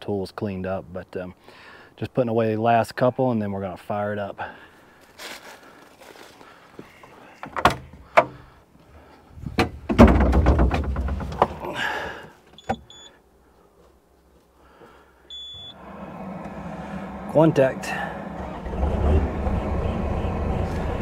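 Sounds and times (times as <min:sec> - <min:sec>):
knocks: 0:09.6 - 0:11.6
steady low machine hum: 0:15.3 - 0:21.0.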